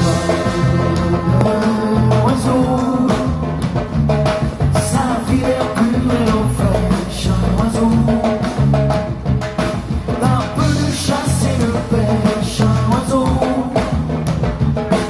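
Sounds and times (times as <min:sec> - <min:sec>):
man singing: 0:00.0 - 0:03.6, 0:04.7 - 0:08.6, 0:10.2 - 0:14.2
live band playing upbeat song: 0:00.0 - 0:15.0.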